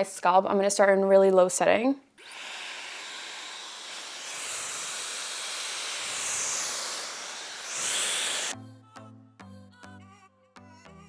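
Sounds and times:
hair dryer blowing: 2.2s - 8.6s.

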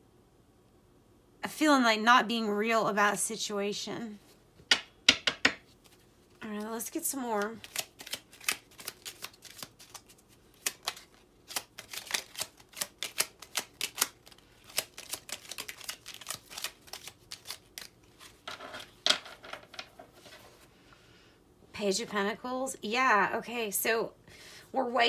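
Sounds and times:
cards being shuffled: 5.6s - 20.6s.

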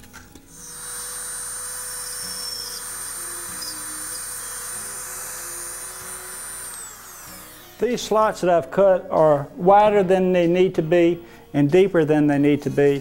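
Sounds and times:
rotary tool grinding foam: 0.5s - 8.4s.

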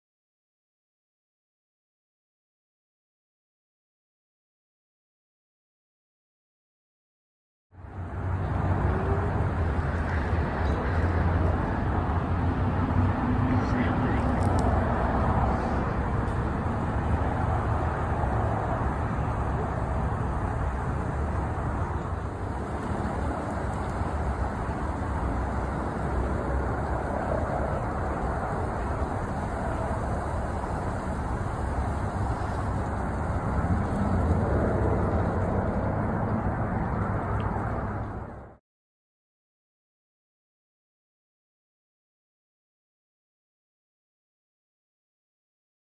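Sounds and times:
helicopter rotor and turbine: 8.4s - 38.5s.

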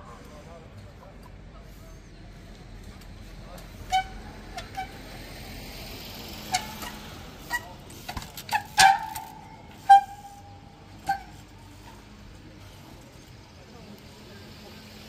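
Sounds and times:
bike high-pitched squeal: 3.8s - 5.2s, 6.4s - 12.0s.

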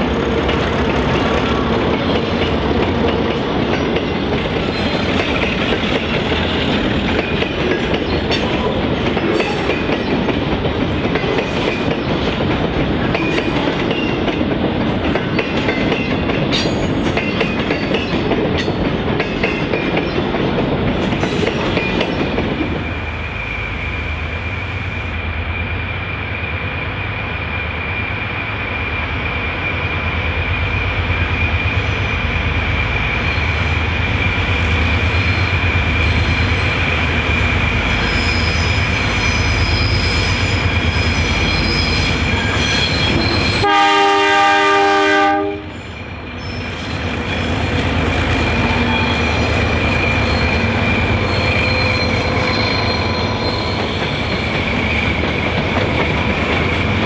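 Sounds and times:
diesel locomotive engine rumble: 0.0s - 57.0s
high-pitched wheel squeal: 38.0s - 43.6s, 45.7s - 55.1s
locomotive horn chord: 43.6s - 45.7s.

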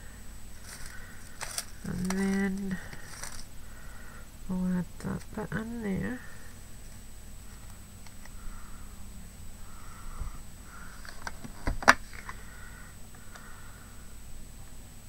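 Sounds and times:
soft breathing: 0.0s - 4.5s, 6.2s - 11.4s, 12.1s - 14.3s.

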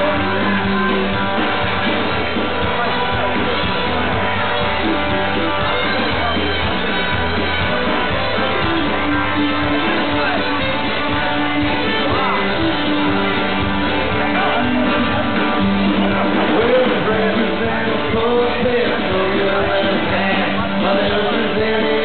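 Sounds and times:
fiddle playing lead: 0.0s - 16.4s
acoustic guitar: 0.0s - 22.0s
drums: 0.0s - 22.0s.

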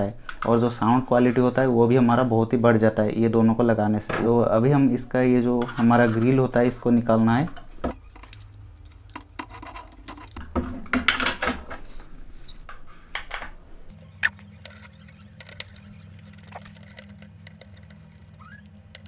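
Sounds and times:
plastic parts clicking and scraping: 7.9s - 11.8s, 14.0s - 19.0s
low hum: 13.9s - 19.0s.

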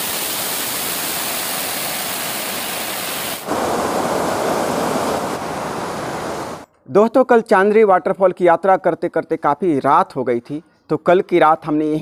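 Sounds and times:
waterfall rushing over rock: 0.0s - 6.6s.

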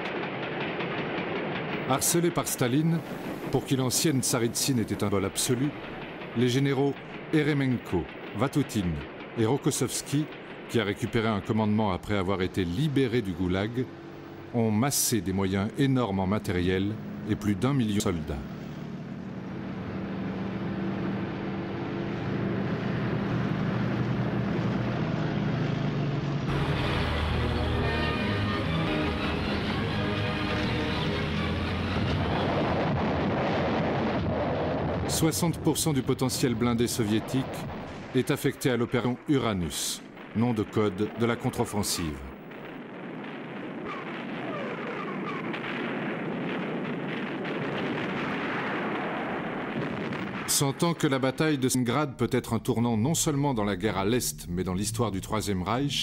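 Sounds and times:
artillery gun reports and blasts: 0.0s - 18.9s, 26.5s - 56.0s
truck engines droning: 10.2s - 34.4s, 53.0s - 56.0s.

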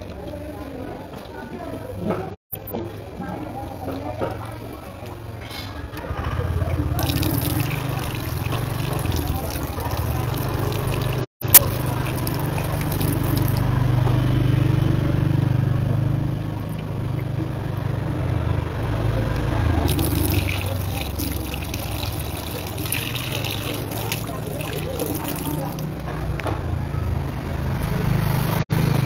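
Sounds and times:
water pouring: 6.7s - 13.7s, 19.9s - 26.0s.

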